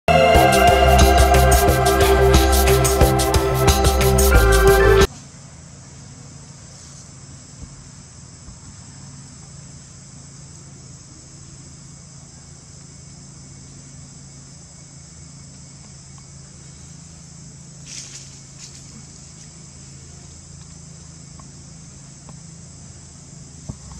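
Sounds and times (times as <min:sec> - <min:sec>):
insects chorus: 0:05.1 - 0:23.9.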